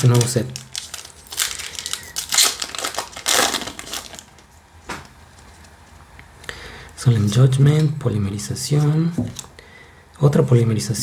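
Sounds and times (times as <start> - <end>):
cards rustling: 0.0 - 4.5
foil pack crinkling and tearing: 0.0 - 4.5.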